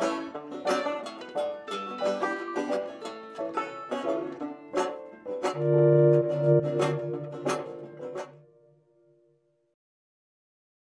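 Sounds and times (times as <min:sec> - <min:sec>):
held string chord: 0:05.4 - 0:08.6.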